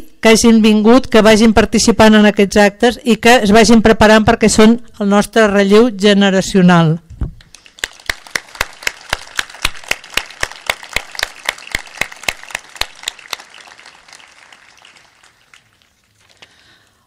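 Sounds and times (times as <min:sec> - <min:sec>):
steady close clapping: 0:07.4 - 0:17.0
crowd applauding: 0:07.5 - 0:16.9.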